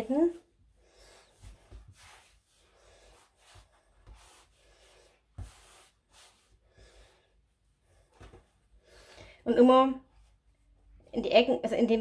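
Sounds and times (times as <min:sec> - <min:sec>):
dough rubbing on stone: 0:01.6 - 0:06.5.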